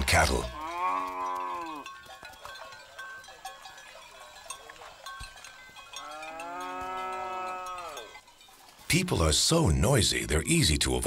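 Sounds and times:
faint livestock calls: 0.4s - 1.9s, 6.0s - 8.2s
cattle mooing: 0.5s - 1.9s, 6.0s - 8.1s.

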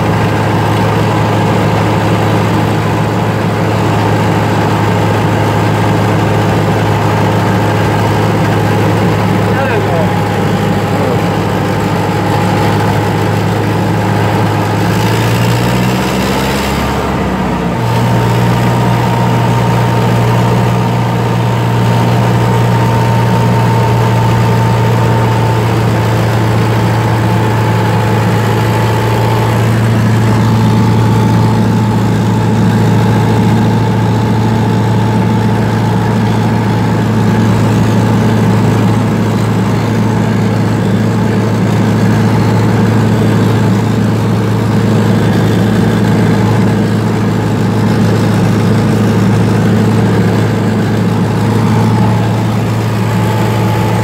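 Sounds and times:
thin steady whine: 0.0s - 16.2s, 16.9s - 54.0s
tractor diesel engine running: 0.0s - 54.0s.

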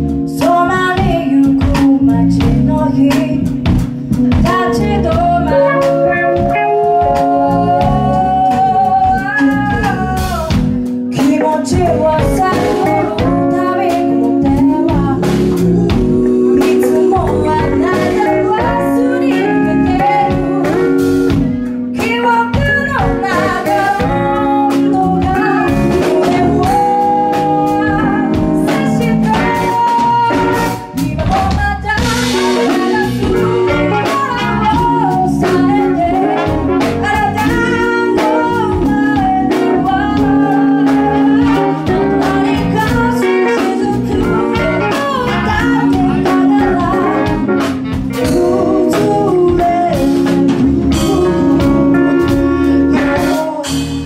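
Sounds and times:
drum kit beat: 0.0s - 54.0s
electric bass: 0.0s - 54.0s
electric keyboard: 0.0s - 54.0s
guitar: 0.0s - 54.0s
people singing: 12.2s - 21.4s, 23.0s - 31.0s, 32.0s - 53.8s.

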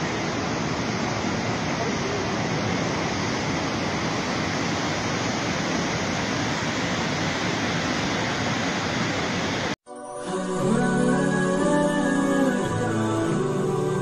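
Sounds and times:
floodwater rushing: 0.0s - 9.8s.

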